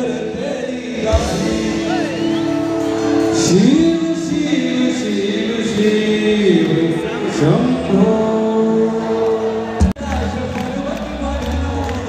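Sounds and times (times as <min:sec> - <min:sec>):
man singing devotional song: 0:00.0 - 0:02.5, 0:03.2 - 0:12.0
band accompanying: 0:00.0 - 0:12.0.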